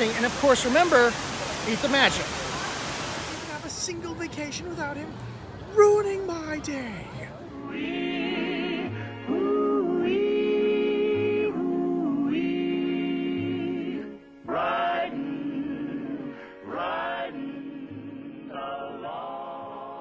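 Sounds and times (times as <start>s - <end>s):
background music with held chords: 7.4s - 20.0s.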